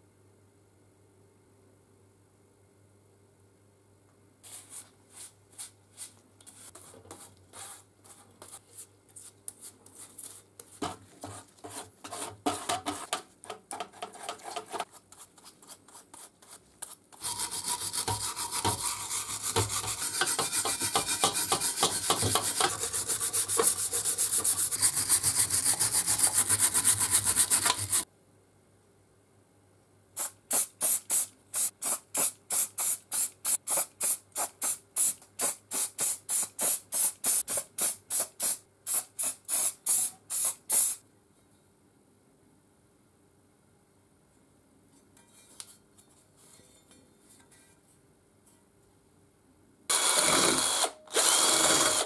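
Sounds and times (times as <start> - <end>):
brush scrubbing metal parts: 4.5 - 28.0.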